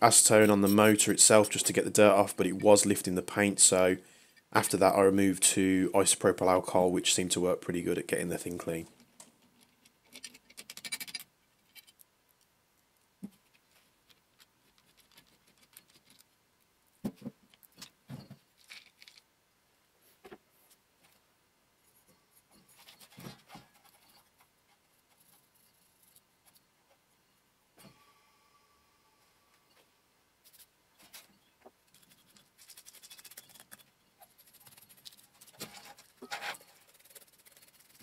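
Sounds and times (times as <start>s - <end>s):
metal scrape: 0.1s - 1.8s, 30.5s - 38.0s
metal parts clinking and knocking: 9.6s - 12.0s, 18.3s - 19.2s.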